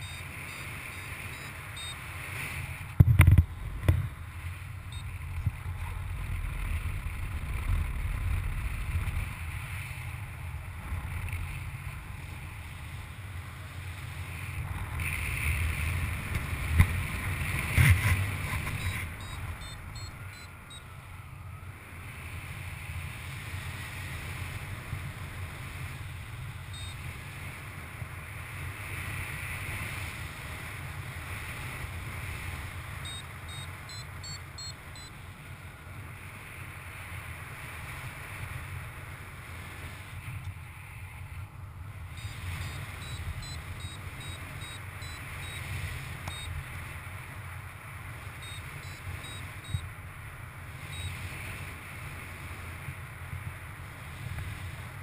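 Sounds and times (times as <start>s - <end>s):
faint high beeps: 0.0s - 2.1s, 4.9s - 5.4s, 18.7s - 21.7s, 26.7s - 27.1s, 33.0s - 35.2s, 42.1s - 46.6s, 48.3s - 49.9s, 50.8s - 51.3s
wind buffeting microphone: 2.5s - 33.6s.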